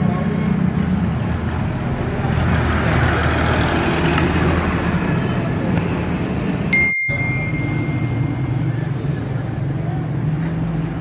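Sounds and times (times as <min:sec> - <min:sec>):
road traffic noise: 0:00.0 - 0:11.0
vehicle passing: 0:00.0 - 0:11.0
steady low hum: 0:00.4 - 0:10.3.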